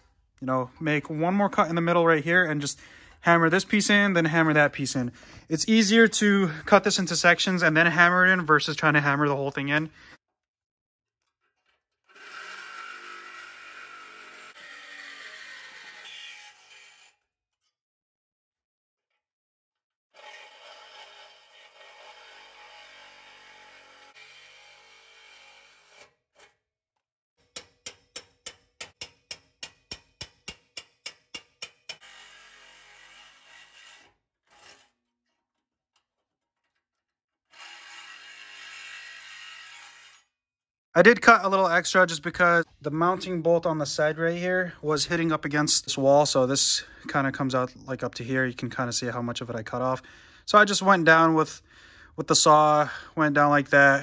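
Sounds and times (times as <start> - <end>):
reciprocating saw cutting steel: 12.1 - 17.2, 20.1 - 26.6, 28.4 - 35.0, 37.5 - 40.3.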